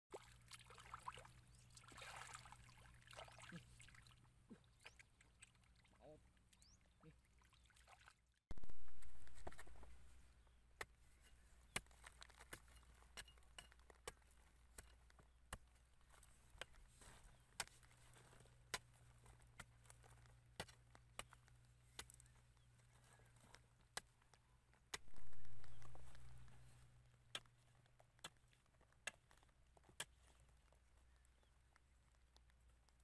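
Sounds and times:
low steady hum: 8.5 - 10.4
dry mud crust crunching: 8.5 - 33.0.

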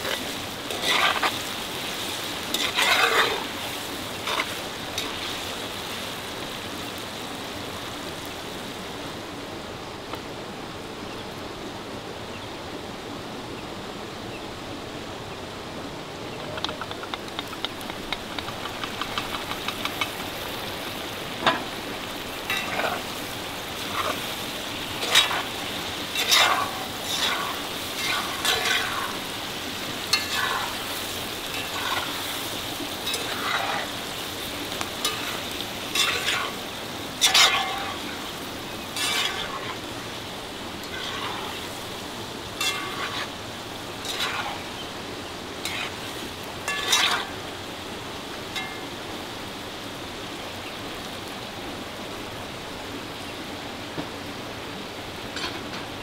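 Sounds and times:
food sizzling in a pot: 0.0 - 9.2, 17.4 - 51.2
spoon scraping a pot: 2.5 - 3.4, 39.0 - 39.6, 42.6 - 43.3, 44.0 - 44.6, 46.7 - 47.4.

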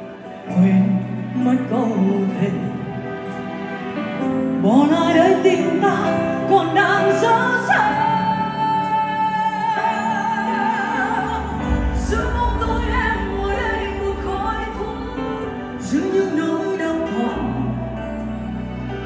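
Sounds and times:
live band playing pop ballad: 0.0 - 19.0
deep bass: 11.5 - 16.4.

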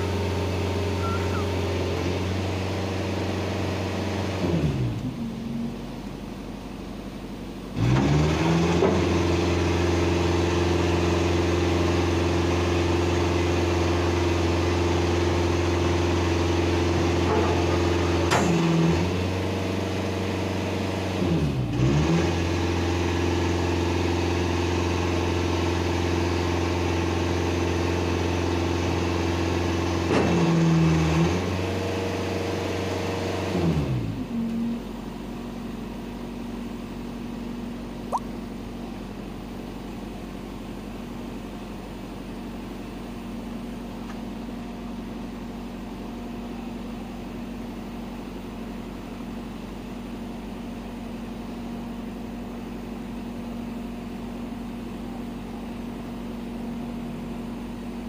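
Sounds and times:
truck diesel engine revving: 0.0 - 5.5, 7.8 - 34.2.

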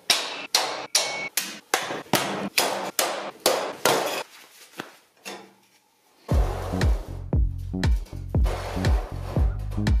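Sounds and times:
ringing hammer blows: 0.1 - 1.4.

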